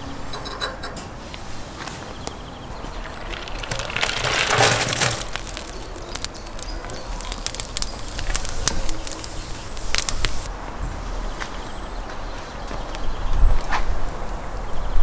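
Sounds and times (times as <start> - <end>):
twigs crackling: 1.7 - 10.5
dry twigs clattering into oven: 1.8 - 10.5.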